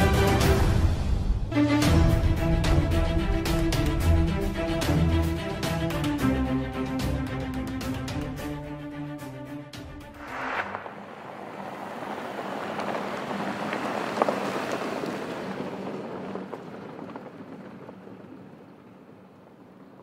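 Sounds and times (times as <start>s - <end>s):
car engine: 10.1s - 20.0s
tyres on gravel: 10.2s - 20.0s.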